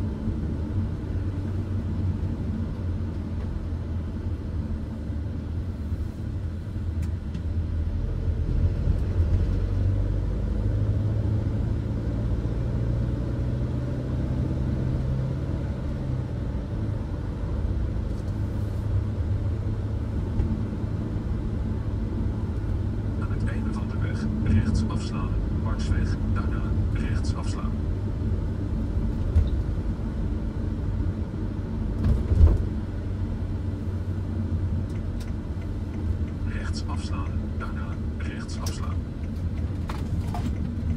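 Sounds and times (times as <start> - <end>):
van engine and road rumble: 0.0 - 40.9.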